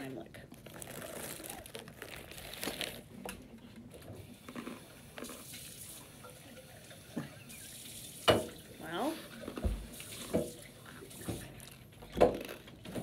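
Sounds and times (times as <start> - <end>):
crunchy snacks being bitten: 0.6 - 3.1, 11.6 - 12.8
tap running into sink: 7.1 - 8.7, 9.5 - 11.5.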